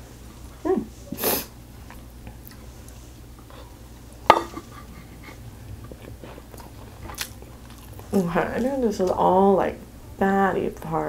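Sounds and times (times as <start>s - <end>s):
noisy inhale: 1.1s - 1.6s
wooden spoon knocking on plate: 4.3s - 4.6s.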